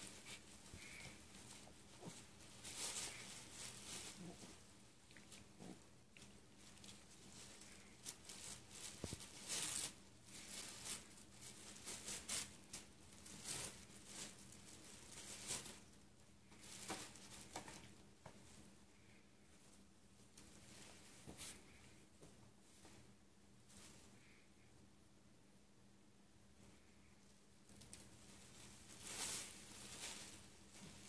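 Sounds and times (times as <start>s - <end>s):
tissue paper and gift bag rustling: 0.0s - 5.8s, 6.5s - 17.9s, 27.8s - 31.0s.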